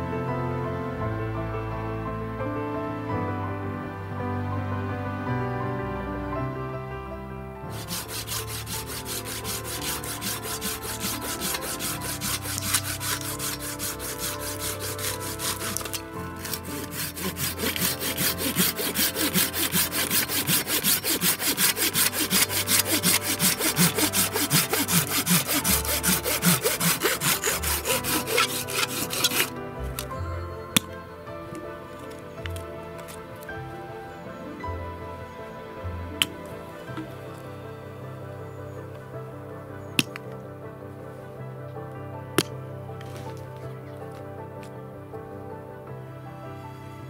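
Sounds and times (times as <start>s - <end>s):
soft background music: 0.0s - 47.0s
hand saw cutting wood: 7.7s - 30.1s, 32.0s - 33.2s.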